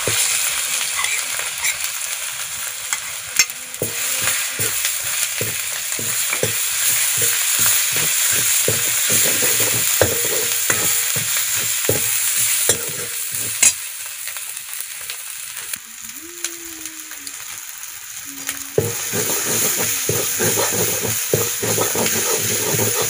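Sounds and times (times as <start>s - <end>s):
spoon stirring and scraping a pan: 0.0s - 2.0s, 2.8s - 13.9s, 18.4s - 23.0s
food sizzling in a pan: 0.0s - 23.0s.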